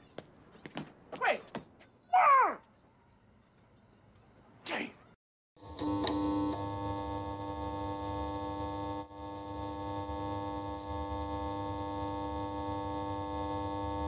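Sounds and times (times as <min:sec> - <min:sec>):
synthesizer drone with pulsing bass: 0:06.3 - 0:14.0.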